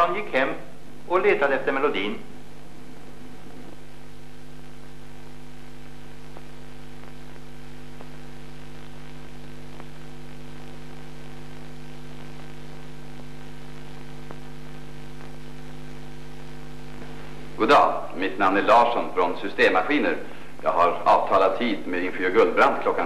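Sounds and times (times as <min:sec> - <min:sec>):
electrical mains hum: 0:00.0 - 0:23.0
faint clicks: 0:09.7 - 0:10.0.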